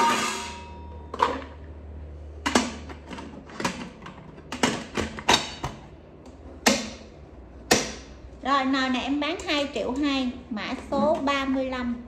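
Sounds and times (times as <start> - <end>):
metal pot clanking: 0.0 - 1.5.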